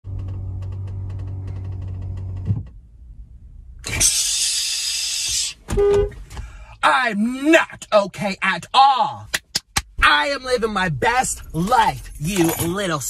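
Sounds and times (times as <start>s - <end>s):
low hum: 0.0s - 4.8s
man's breathy hissing cry: 3.9s - 5.6s.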